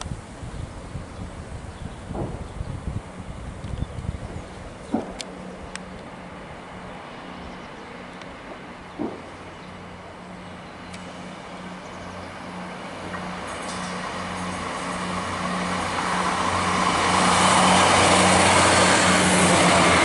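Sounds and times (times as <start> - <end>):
diesel train engine drone: 0.0 - 20.0.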